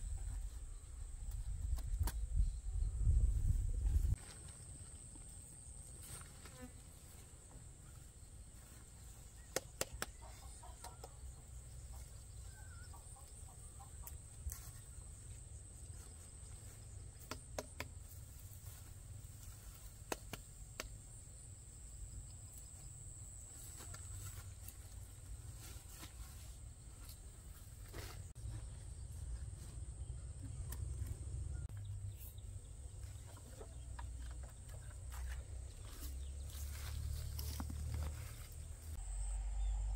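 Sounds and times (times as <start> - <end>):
footsteps in grass: 3.8 - 10.9, 23.5 - 29.7, 34.7 - 39.1
insects whining: 36.2 - 39.9
faint bird calls: 39.0 - 39.9.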